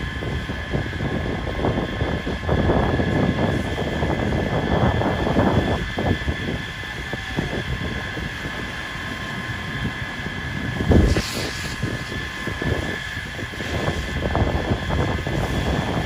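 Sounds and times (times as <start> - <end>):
steady high whine: 0.0 - 16.0
wind buffeting microphone: 0.0 - 16.0
hose spraying water: 1.7 - 16.0
thump with hiss: 11.0 - 11.9.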